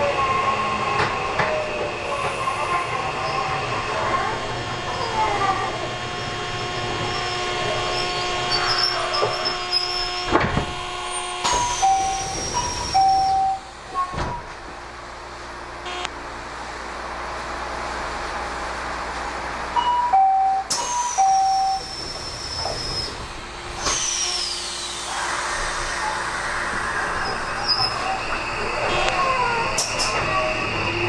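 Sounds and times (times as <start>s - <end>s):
train car hum: 0.0s - 31.0s
two-note door chime: 19.8s - 21.8s.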